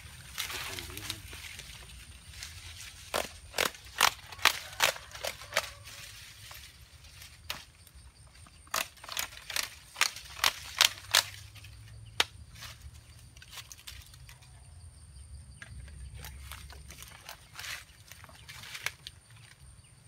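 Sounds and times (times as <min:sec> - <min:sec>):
leaves rustling: 0:00.0 - 0:14.7, 0:16.1 - 0:20.0
plant stems snapping: 0:03.0 - 0:05.8, 0:08.6 - 0:12.7.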